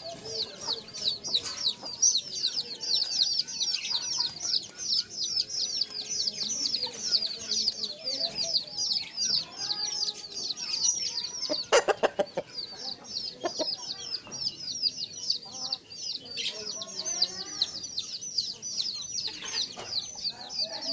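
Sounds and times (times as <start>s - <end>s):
rooster clucking: 11.3s - 14.0s.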